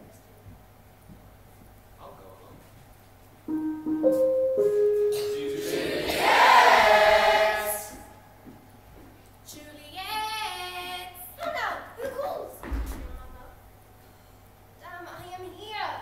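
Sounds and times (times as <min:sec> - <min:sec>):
young voices singing: 0:05.2 - 0:08.2.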